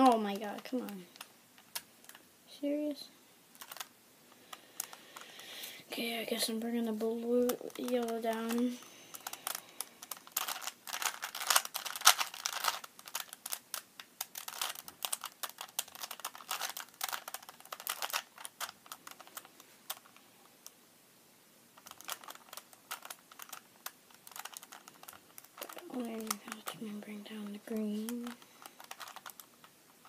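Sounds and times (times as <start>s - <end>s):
puzzle cube layers clicking: 7.4s - 20.2s, 21.8s - 26.8s.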